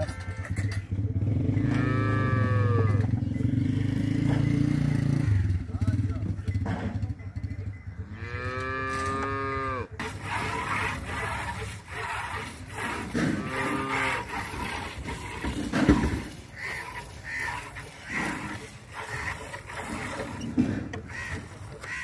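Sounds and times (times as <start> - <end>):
cattle mooing: 1.5 - 3.1, 8.1 - 20.4.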